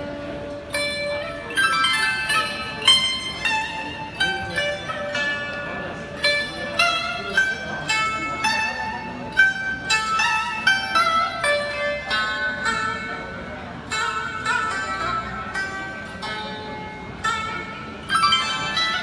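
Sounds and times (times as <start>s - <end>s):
zither plucked melody: 0.0s - 19.0s.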